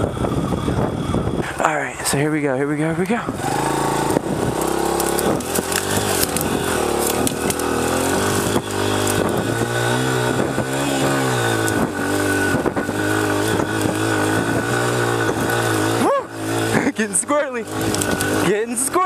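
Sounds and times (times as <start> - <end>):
dirt bike engine revving: 0.0 - 19.0
scattered clicks: 17.7 - 18.3.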